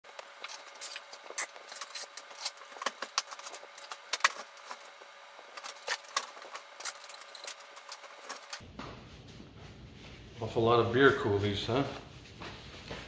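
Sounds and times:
household items clinking and rattling: 0.3s - 8.6s.

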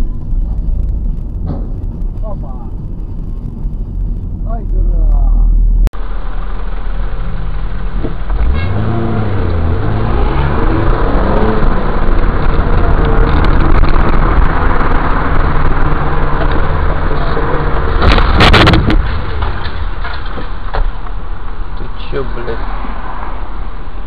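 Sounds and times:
car engine accelerating: 0.0s - 23.3s
road noise: 0.0s - 24.0s
loud car crash: 16.3s - 21.2s.

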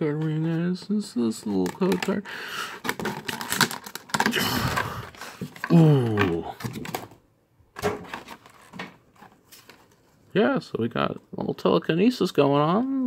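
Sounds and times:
plastic packaging crinkling: 1.3s - 7.1s.

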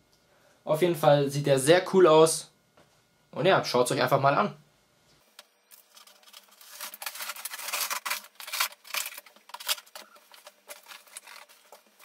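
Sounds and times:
cardboard scraping and rustling: 5.8s - 12.0s.

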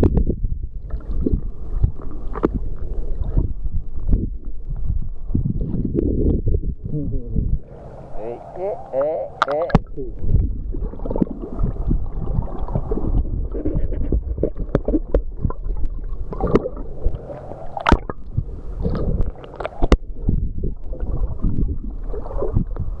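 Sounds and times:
seawater sloshing and gurgling: 0.0s - 23.0s
sharp clicks and pops: 1.2s - 2.6s, 13.1s - 17.2s, 17.8s - 20.1s.

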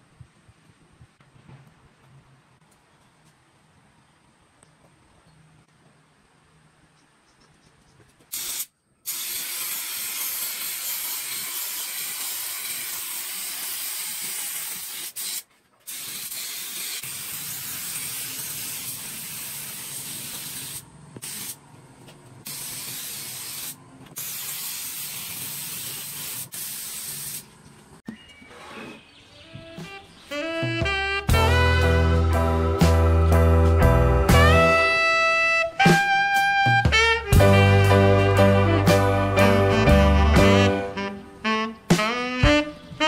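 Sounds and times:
spray gun hissing: 8.3s - 21.6s, 22.5s - 27.5s.

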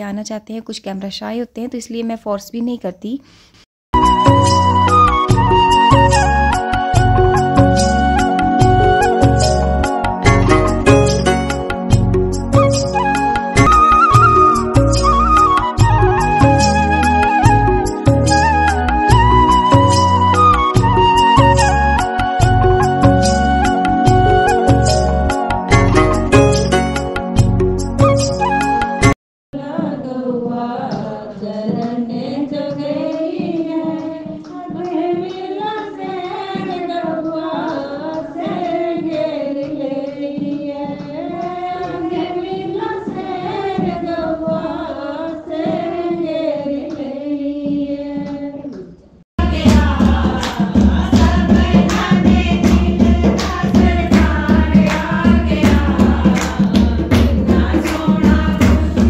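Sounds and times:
women singing devotional song: 29.6s - 59.0s
hand clapping: 49.5s - 59.0s.

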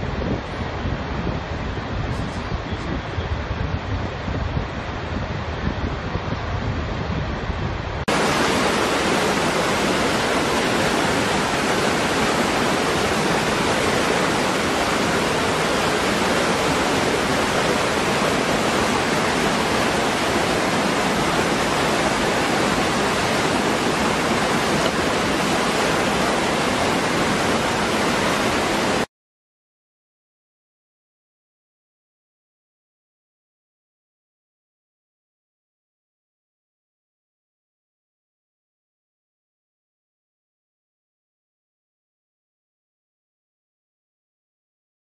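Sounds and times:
waterfall rushing: 8.1s - 29.1s.

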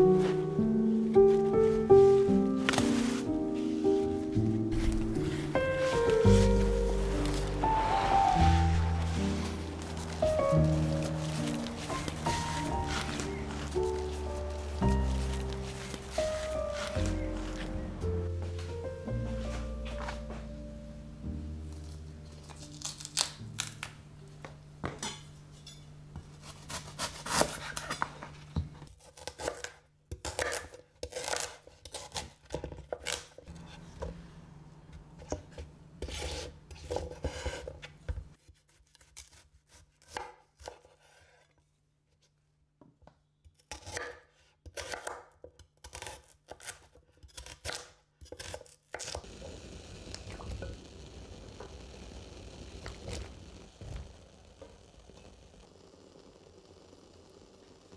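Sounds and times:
skin peeling off stalk: 8.8s - 17.8s, 21.8s - 24.0s.

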